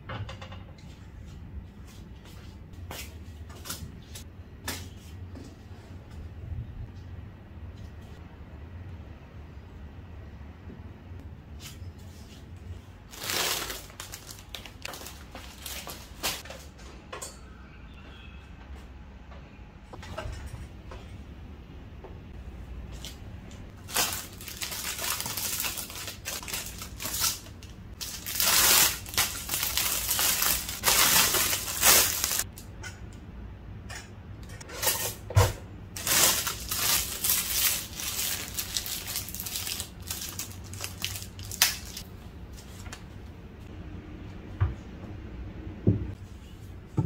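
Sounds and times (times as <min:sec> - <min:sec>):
rustling and crinkling: 0:11.6 - 0:16.7, 0:22.9 - 0:32.5, 0:36.0 - 0:43.2.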